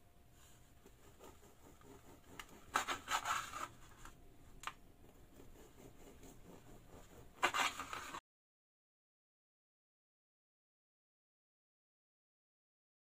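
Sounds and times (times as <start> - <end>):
knife sawing through bread crust: 0.8 - 3.8, 5.1 - 8.2.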